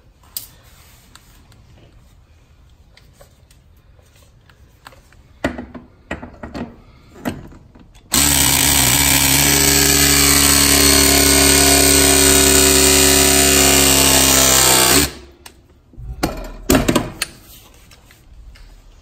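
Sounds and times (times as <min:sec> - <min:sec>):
press tool motor running: 0:08.1 - 0:15.2.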